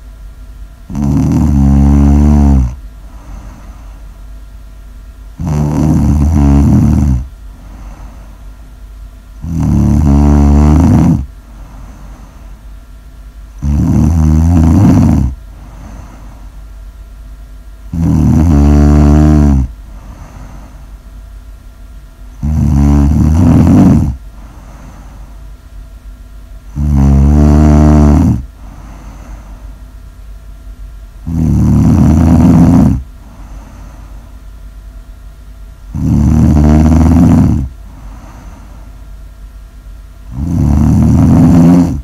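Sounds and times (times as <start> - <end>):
person snoring loudly: 0.9 - 3.9, 5.4 - 8.3, 9.4 - 12.4, 13.6 - 16.4, 17.9 - 20.7, 22.4 - 25.2, 26.7 - 29.4, 31.2 - 34.1, 35.9 - 38.8, 40.2 - 42.0.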